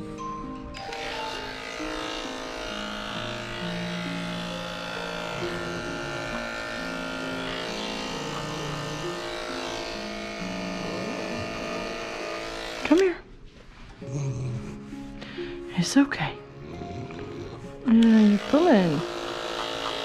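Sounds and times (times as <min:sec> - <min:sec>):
background music: 0:00.0 - 0:20.0
electric clippers buzzing: 0:00.7 - 0:13.2, 0:17.0 - 0:20.0.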